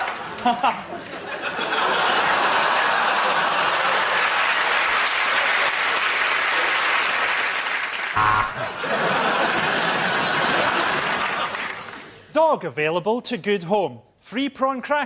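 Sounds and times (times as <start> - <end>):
audience applauding: 2.3 - 12.2.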